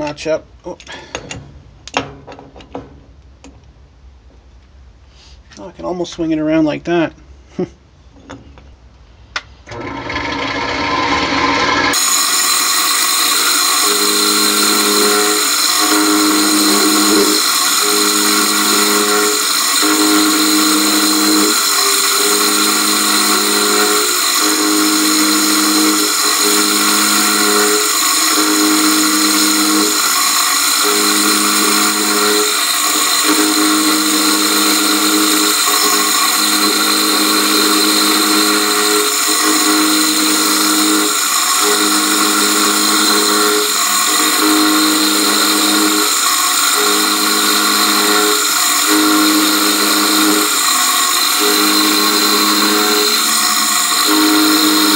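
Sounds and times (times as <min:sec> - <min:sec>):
milling machine whine: 0:09.7 - 0:54.9.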